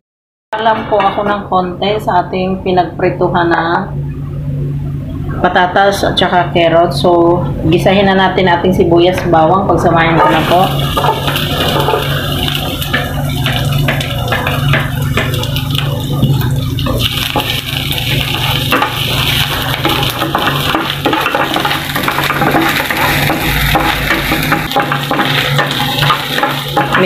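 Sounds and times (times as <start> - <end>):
steady low hum: 0.6 - 27.0
onion and garlic sizzling in oil: 10.1 - 27.0
wooden spatula stirring: 10.2 - 27.0.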